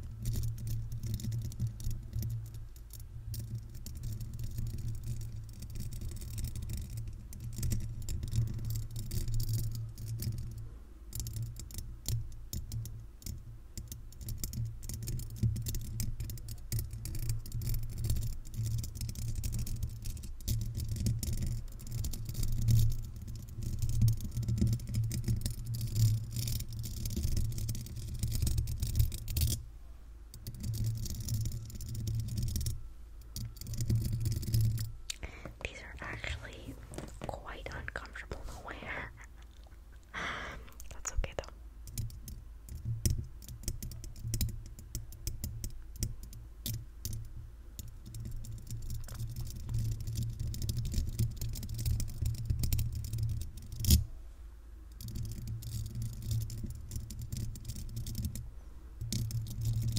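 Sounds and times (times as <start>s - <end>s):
scratching on microphone grille: 35.5s - 39.4s.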